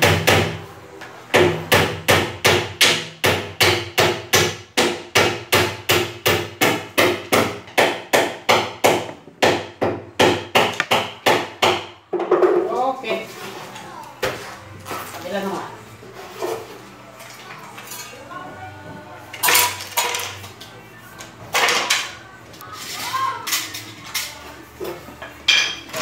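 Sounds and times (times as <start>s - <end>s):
hand hammer striking: 1.4s - 11.9s.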